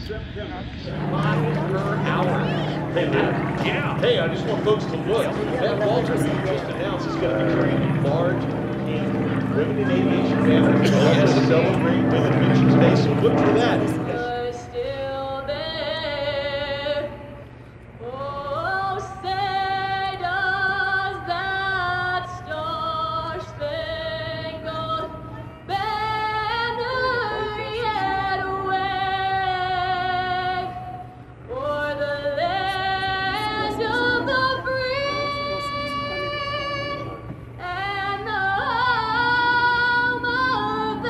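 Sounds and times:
steady low hum: 0.0s - 41.0s
women singing: 18.0s - 41.0s.

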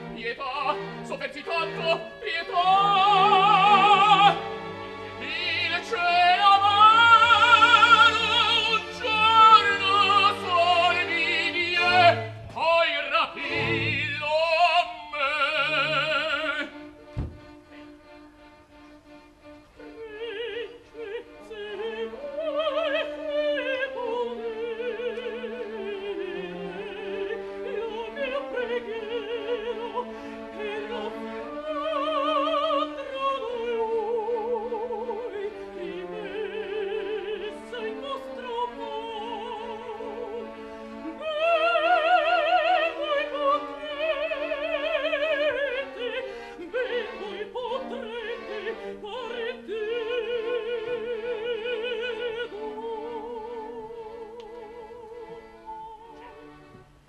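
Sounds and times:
soft orchestral accompaniment: 0.0s - 57.0s
soprano singing: 0.0s - 57.0s.

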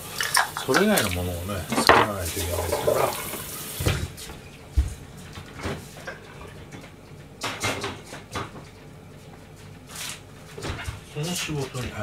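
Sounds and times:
soft knocks and rustles: 3.7s - 11.1s.

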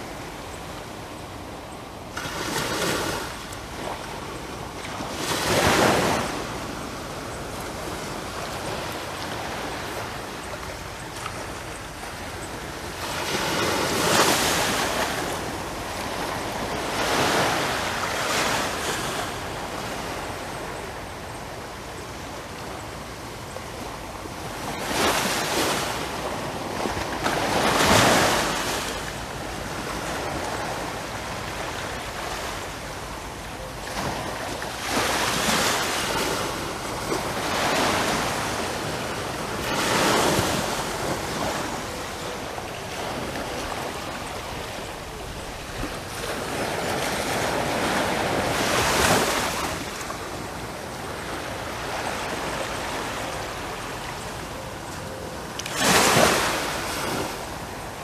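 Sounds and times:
waves breaking on sandy beach: 0.0s - 58.0s.

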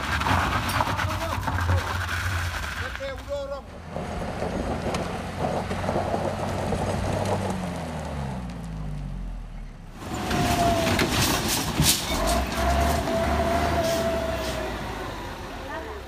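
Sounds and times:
van engine revving: 3.7s - 16.0s
truck engine labouring: 9.4s - 16.0s.

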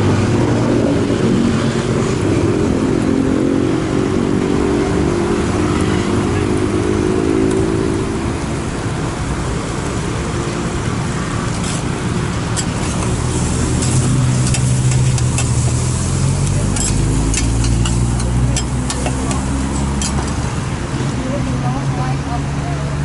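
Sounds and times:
vehicle engine hum: 0.0s - 23.0s
food sizzling: 11.2s - 20.6s
metal spatula scraping pan: 16.7s - 20.3s.

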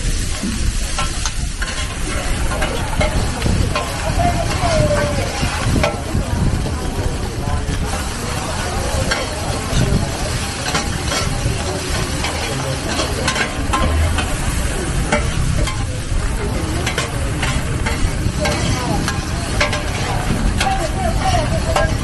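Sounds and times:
metal spatulas scraping a pan: 0.7s - 6.0s, 7.9s - 22.0s.

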